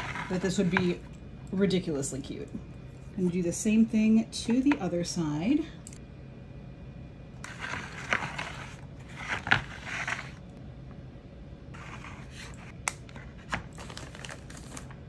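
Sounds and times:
plastic scraping: 7.4 - 10.4.

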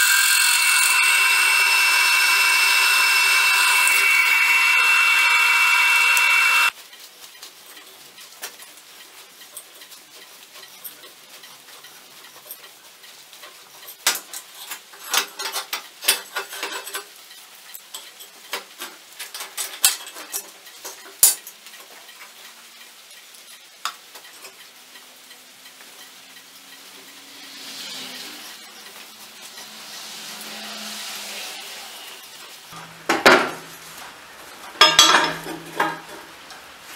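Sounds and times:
drill press running: 0.0 - 6.7.

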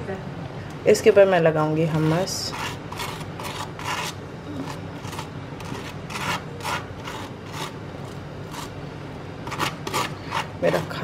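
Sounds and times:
knife scraping toasted bread: 1.9 - 8.8, 9.4 - 10.9.

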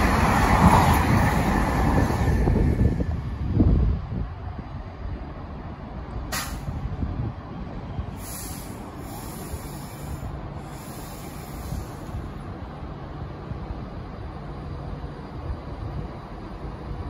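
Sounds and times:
electric train humming: 0.0 - 17.0
air hissing: 6.3 - 6.8, 8.1 - 12.3.

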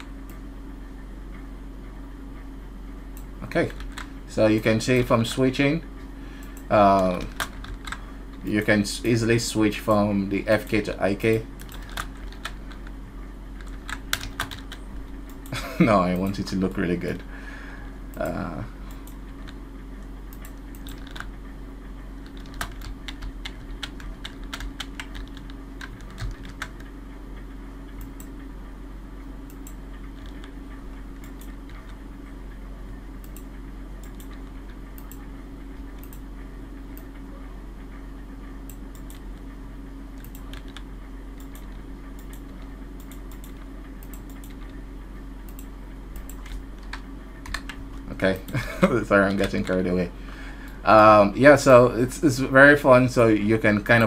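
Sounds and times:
low hum: 0.0 - 54.0
keyboard and mouse clicking: 11.6 - 12.9, 13.6 - 15.5, 20.3 - 21.3, 22.2 - 26.9, 29.5 - 30.6, 33.2 - 35.2, 35.9 - 36.3, 38.7 - 39.4, 40.2 - 44.8, 45.5 - 47.8.

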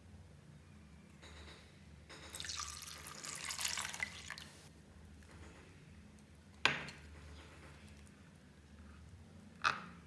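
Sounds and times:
water pouring into a glass dish: 2.3 - 4.5.

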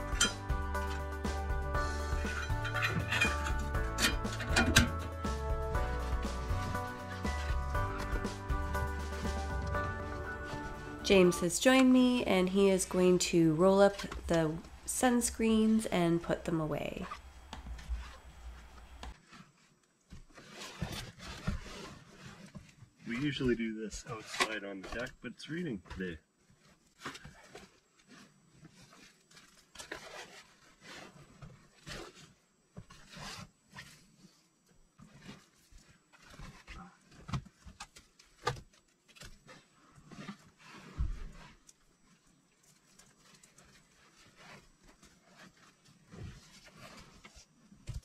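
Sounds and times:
fabric rustling and swishing: 5.8 - 15.8, 16.9 - 23.4
canvas rustling and flapping: 17.0 - 23.4, 26.5 - 34.4, 35.0 - 48.0.

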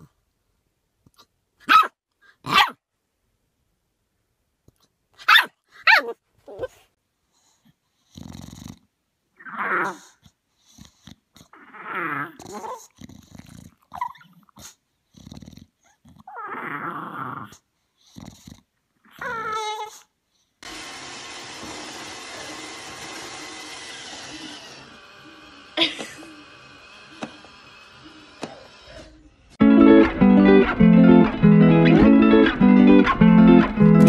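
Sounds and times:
puppy yelping: 1.6 - 1.9, 2.5 - 2.8, 5.2 - 6.8
dog whining: 5.9 - 6.9, 10.9 - 13.0, 13.9 - 14.5, 15.8 - 17.6, 19.0 - 20.1.

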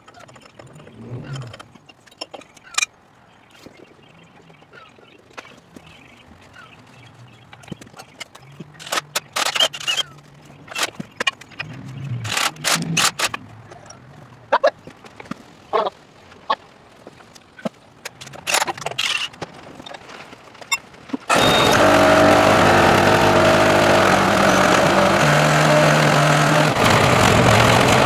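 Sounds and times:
diesel engine running: 21.3 - 28.0.

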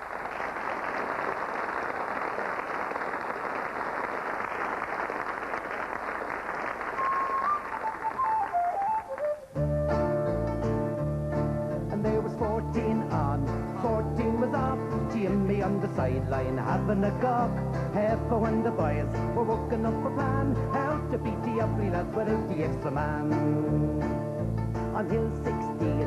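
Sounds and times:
audience applauding: 0.0 - 9.5
whistle notes: 7.0 - 12.0
folk band with banjo and guitars: 9.6 - 26.0.

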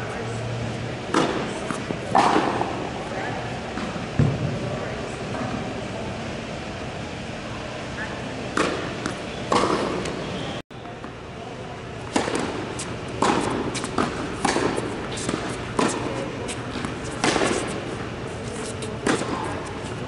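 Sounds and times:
racket hitting tennis ball: 1.1 - 2.9, 8.5 - 10.2, 12.0 - 20.0
ball bouncing on hard court: 3.8 - 4.5.

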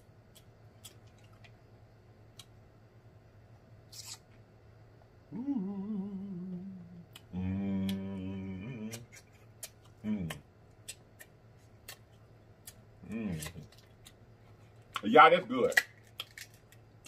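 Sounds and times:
man humming with mouth closed: 5.3 - 9.2, 10.0 - 10.5, 13.0 - 13.7
crab shell crackling: 15.0 - 17.0.

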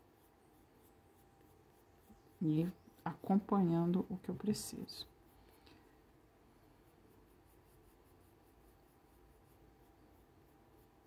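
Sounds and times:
pencil scratching on paper: 0.0 - 5.6, 6.7 - 11.0.

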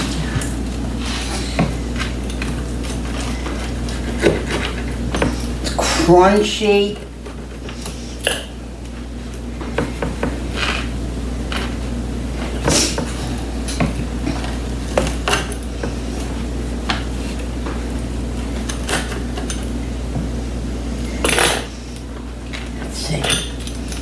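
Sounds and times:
pizza cutter crunching through crust: 0.2 - 6.1, 10.2 - 16.4.

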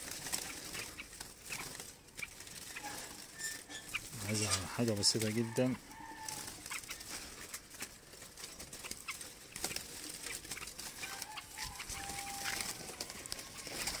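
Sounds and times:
caged birds calling faintly: 0.0 - 14.0.

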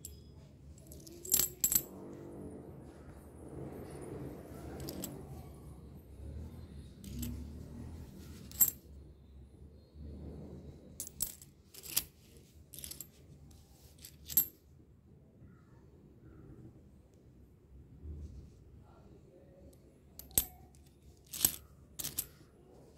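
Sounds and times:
coins clinking: 0.0 - 1.9, 4.6 - 5.4, 7.0 - 7.6, 8.4 - 8.8, 11.0 - 12.1, 12.7 - 13.1, 14.0 - 14.5, 20.2 - 22.4.

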